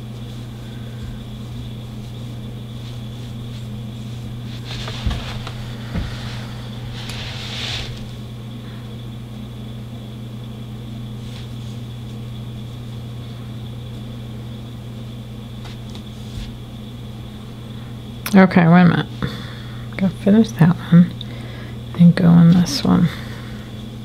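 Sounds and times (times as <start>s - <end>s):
soft rustle: 0.0s - 8.2s
low electrical hum: 0.0s - 24.0s.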